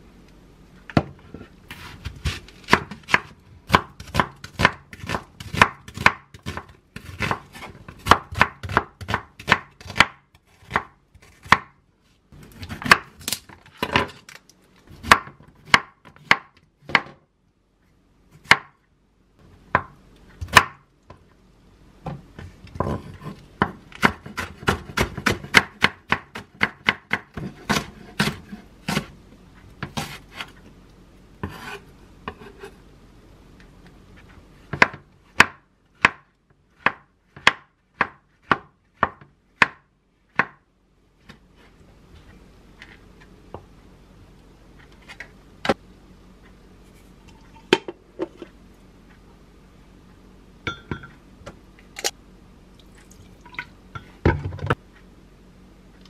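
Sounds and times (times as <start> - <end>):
knife chopping on wooden board: 1.0 - 11.8, 12.4 - 13.2, 15.0 - 17.2, 22.1 - 29.1, 34.7 - 40.6.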